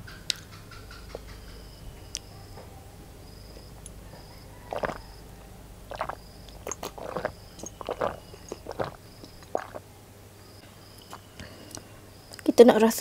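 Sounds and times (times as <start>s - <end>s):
gulps and swallows of water: 4.7s - 5.2s, 5.9s - 9.8s.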